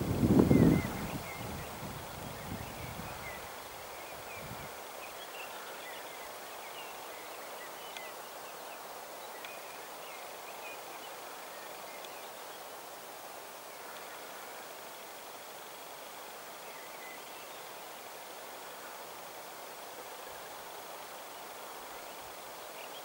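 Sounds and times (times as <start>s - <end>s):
breeze hissing: 0.0s - 23.0s.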